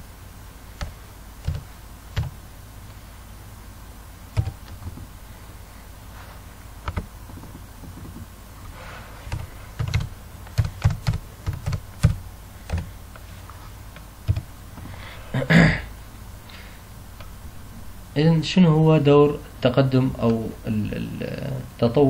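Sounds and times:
computer keyboard typing: 0.8s - 2.4s, 4.4s - 5.0s, 6.8s - 8.2s, 9.3s - 12.9s, 13.9s - 14.5s.

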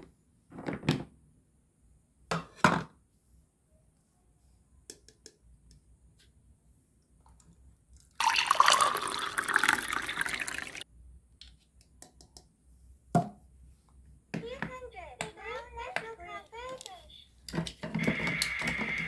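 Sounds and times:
liquid pouring into toy saucepan: 8.0s - 10.8s.

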